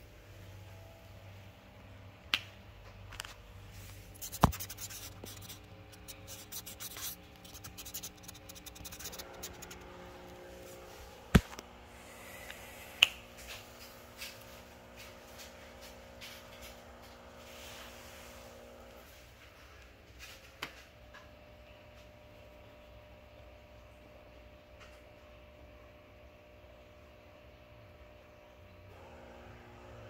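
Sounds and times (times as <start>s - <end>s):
rubbing and scratching on microphone: 3.8s - 10.0s.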